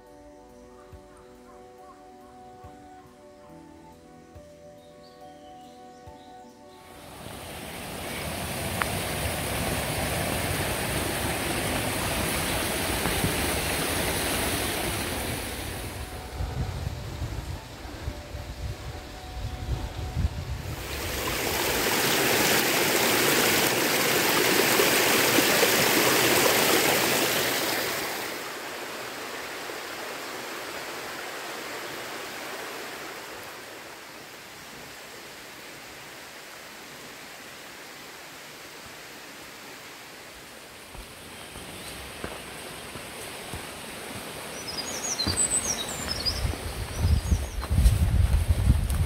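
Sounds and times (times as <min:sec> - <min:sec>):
flowing water rushing: 0:07.0 - 0:16.3, 0:20.6 - 0:47.0.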